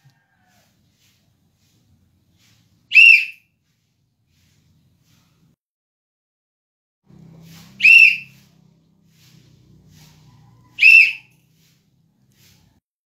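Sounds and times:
referee's whistle blasts: 3.0s - 3.4s, 7.8s - 8.3s, 10.8s - 11.2s.

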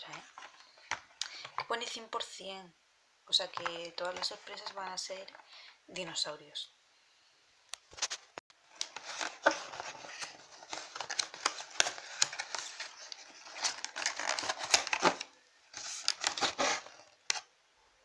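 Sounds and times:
cardboard carton tearing: 10.9s - 15.2s, 15.8s - 17.0s.

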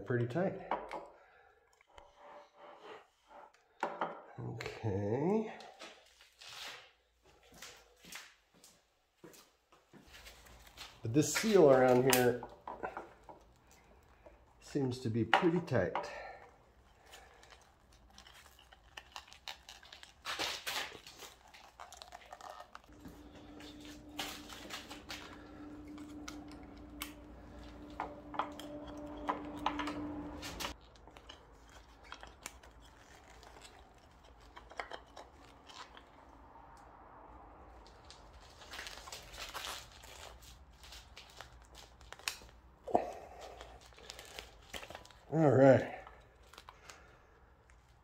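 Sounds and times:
steady hum: 22.9s - 30.8s.

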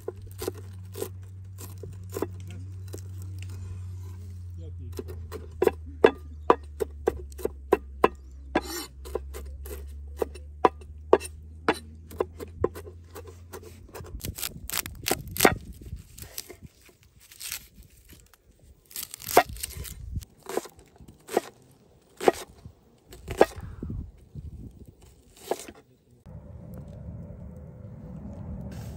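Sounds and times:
knife cutting onion: 4.9s - 16.7s, 18.9s - 21.6s, 22.2s - 23.6s
knife chopping on wooden board: 22.2s - 22.4s.

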